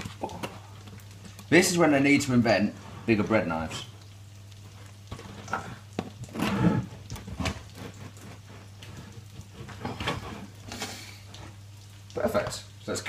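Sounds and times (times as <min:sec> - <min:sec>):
bread knife sawing crusty bread: 0:07.3 - 0:10.5.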